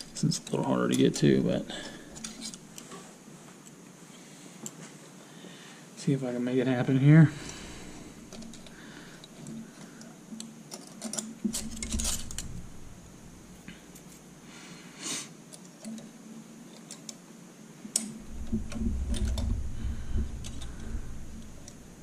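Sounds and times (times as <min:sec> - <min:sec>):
dull handling bumps: 0:18.2 - 0:22.0.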